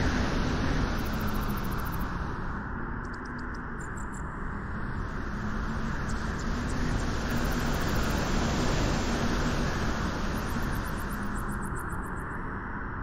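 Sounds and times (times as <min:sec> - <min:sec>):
wind: 0:00.0 - 0:13.0
surf rushing: 0:06.4 - 0:11.3.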